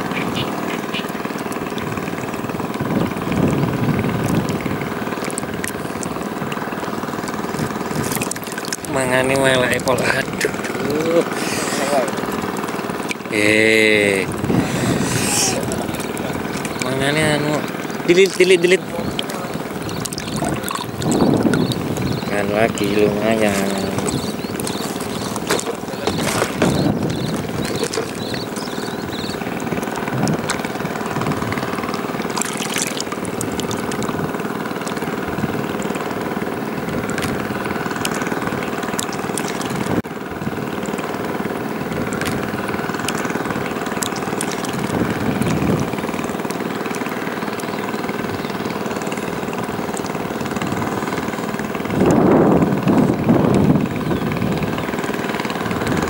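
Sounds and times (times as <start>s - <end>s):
engine humming: 0.0s - 56.0s.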